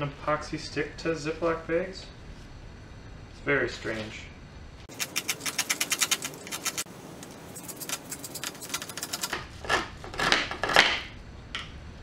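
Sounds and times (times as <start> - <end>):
scissors snipping bristles: 4.9 - 10.8.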